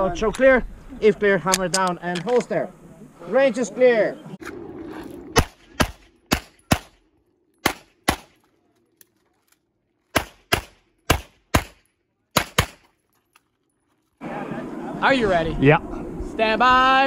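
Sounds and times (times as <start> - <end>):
pistol shots with ringing echo: 5.3 - 7.0, 7.6 - 8.4, 10.1 - 12.9.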